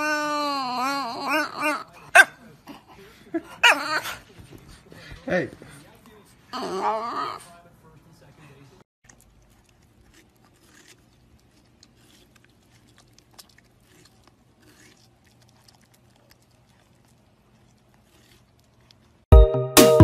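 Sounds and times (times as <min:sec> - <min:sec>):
dog chewing: 0:08.5 - 0:19.3.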